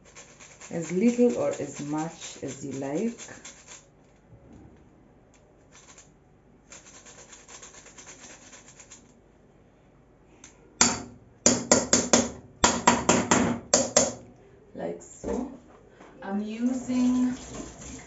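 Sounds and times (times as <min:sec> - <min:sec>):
ginger grated on hand grater: 0:00.0 - 0:03.8.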